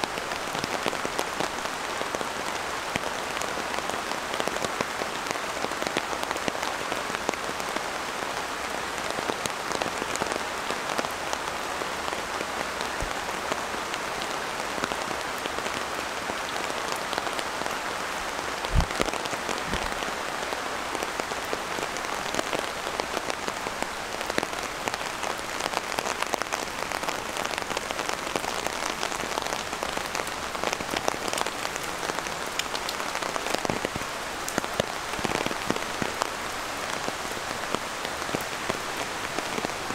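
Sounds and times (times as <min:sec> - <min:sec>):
steady rain falling: 0:00.0 - 0:39.9
raindrop hits: 0:18.6 - 0:20.2
brief low thump: 0:18.7 - 0:19.1.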